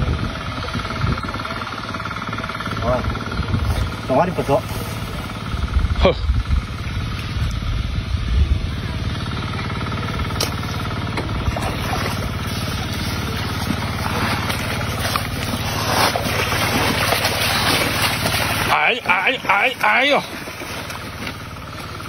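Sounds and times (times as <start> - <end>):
engine-driven water pump humming: 0.0 - 22.0
fish splashing water: 10.0 - 22.0.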